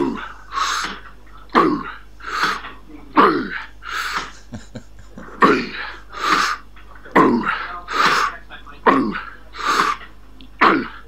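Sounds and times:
man laughing wheezily: 4.2 - 6.0.

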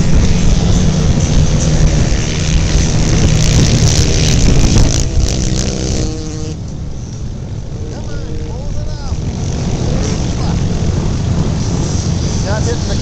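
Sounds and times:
quad engines racing: 0.0 - 13.0.

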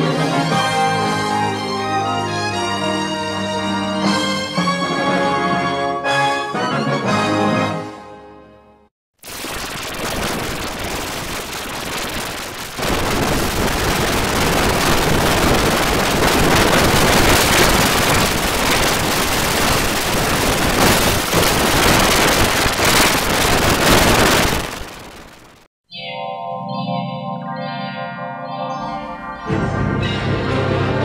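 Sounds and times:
harsh crackling static noise: 9.2 - 25.7.

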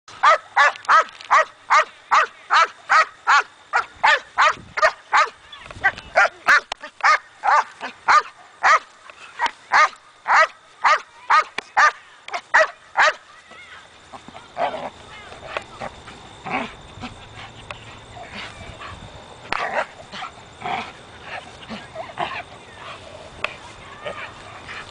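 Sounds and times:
dog barking hard and fast: 0.2 - 5.4, 6.2 - 8.9, 9.7 - 13.2.

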